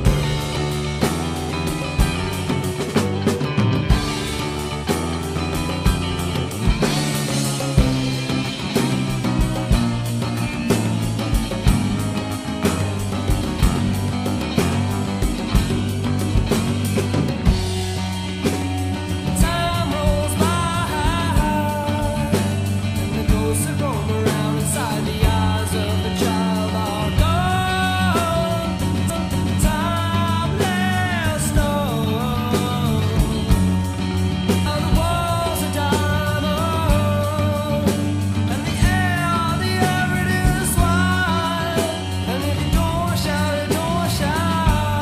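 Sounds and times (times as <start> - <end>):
rock song with drums and bass: 0.0 - 45.0
person singing: 19.1 - 33.9, 34.5 - 45.0.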